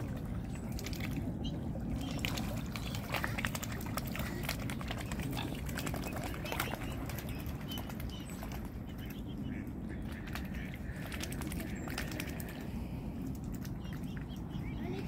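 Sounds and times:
small water splashes: 0:00.0 - 0:15.0.

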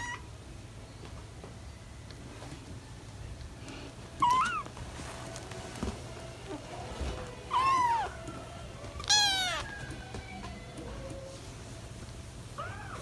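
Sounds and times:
kittens mewing: 0:04.2 - 0:04.7, 0:07.5 - 0:08.4, 0:09.0 - 0:11.3.

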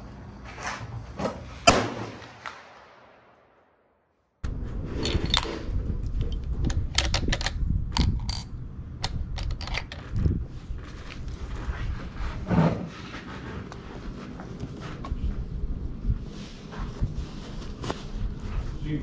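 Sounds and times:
steady low rumble: 0:04.4 - 0:19.0
metallic clicks and knocks of rifle: 0:06.2 - 0:10.2.

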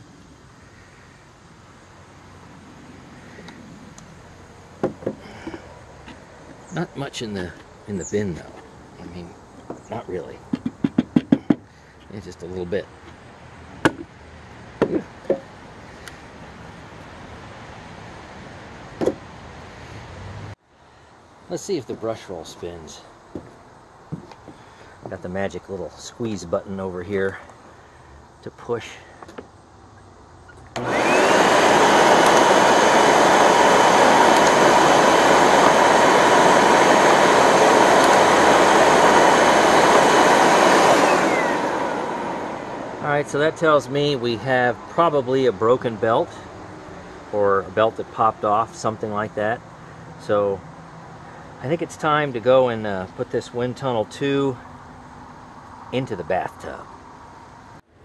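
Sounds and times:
steady background noise: 0:00.0 - 0:58.0
vacuum switch: 0:30.7 - 0:43.0
upright vacuum motor whining: 0:30.7 - 0:43.4.

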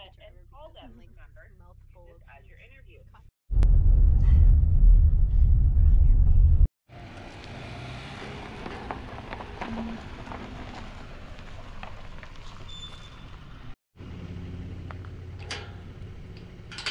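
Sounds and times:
vehicle moving over dirt: 0:06.9 - 0:16.9.

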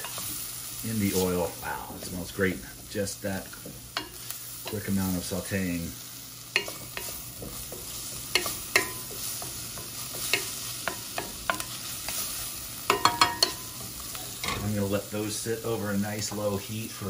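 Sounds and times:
wooden spoon scraping a pan: 0:00.0 - 0:05.4
oil sizzling: 0:00.0 - 0:17.0
spoon knocking metal pan: 0:06.5 - 0:11.8, 0:12.9 - 0:13.8.

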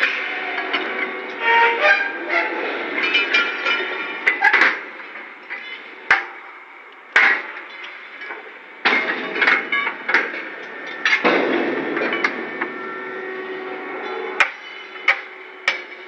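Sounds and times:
metal-on-metal clanks: 0:07.2 - 0:13.0, 0:14.0 - 0:16.0.

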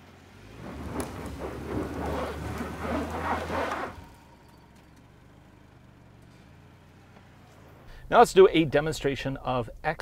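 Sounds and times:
car engine droning: 0:00.0 - 0:08.8
tyres spinning on loose dirt: 0:00.3 - 0:05.0.

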